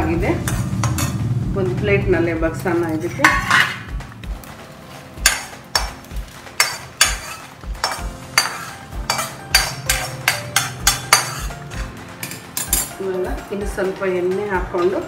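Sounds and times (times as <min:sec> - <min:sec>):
spatula scraping a metal pan: 0:03.0 - 0:04.0, 0:04.9 - 0:12.9.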